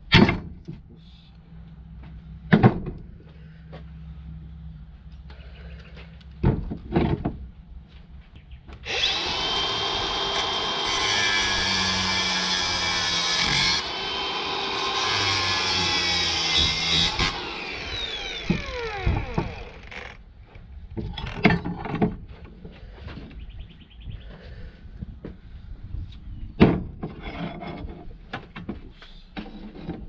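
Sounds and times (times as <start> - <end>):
angle grinder cutting metal: 8.8 - 20.2.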